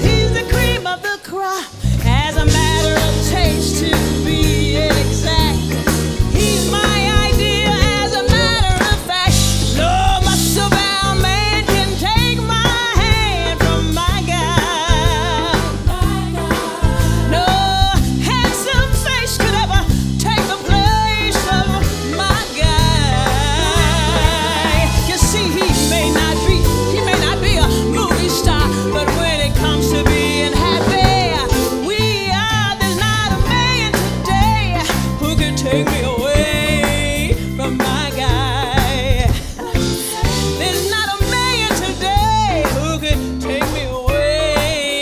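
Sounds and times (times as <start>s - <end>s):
soul band playing: 0.0s - 45.0s
woman singing with vibrato: 0.0s - 45.0s
female backing singers: 6.3s - 10.8s, 13.0s - 18.3s, 23.0s - 32.6s.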